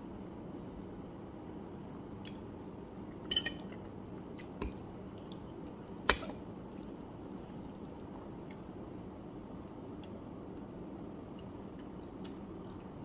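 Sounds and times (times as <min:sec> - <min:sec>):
fork clinking on ceramic plate: 0:03.3 - 0:03.7.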